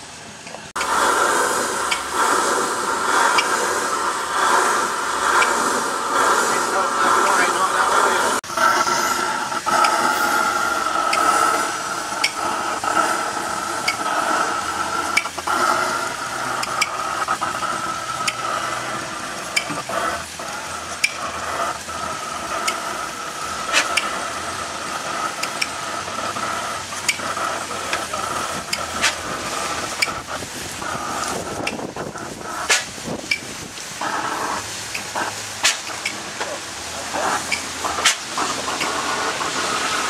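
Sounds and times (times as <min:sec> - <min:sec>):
blowlamp hissing: 0:00.0 - 0:40.0
light engine clicks: 0:19.5 - 0:19.8, 0:25.4 - 0:25.8.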